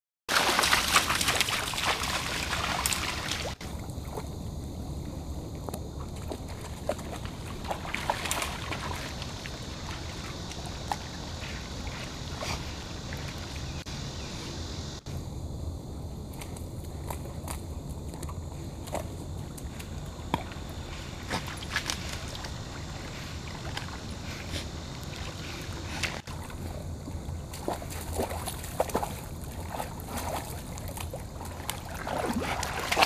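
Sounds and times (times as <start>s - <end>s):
dog splashing in water: 0.3s - 4.2s, 6.2s - 13.7s, 25.1s - 33.0s.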